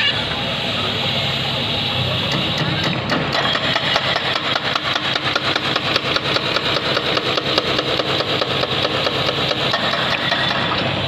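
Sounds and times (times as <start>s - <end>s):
diesel engines clattering: 0.0s - 11.0s.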